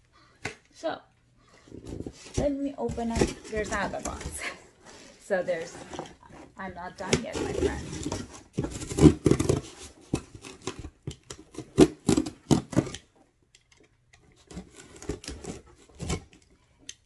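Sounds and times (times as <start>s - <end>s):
cardboard box clicks and scrapes: 7.1s - 10.8s.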